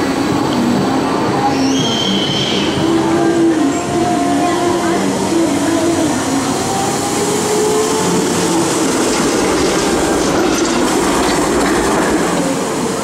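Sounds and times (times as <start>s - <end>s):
tram wheels clattering over rails: 2.8s - 13.0s.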